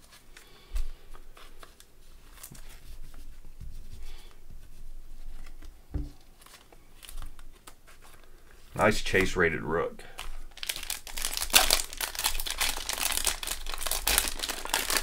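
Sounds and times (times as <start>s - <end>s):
knock on tabletop: 5.9s - 6.2s.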